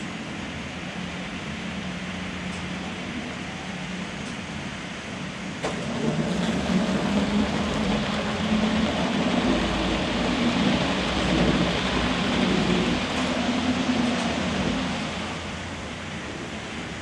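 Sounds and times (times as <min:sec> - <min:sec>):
model train wheels rumbling on rails: 0:05.2 - 0:17.0.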